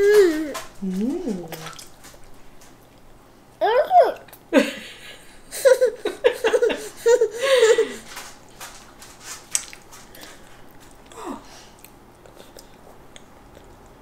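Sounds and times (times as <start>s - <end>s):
child giggling: 3.6s - 8.1s
chewing clicks and smacks: 9.4s - 11.1s, 11.8s - 14.0s.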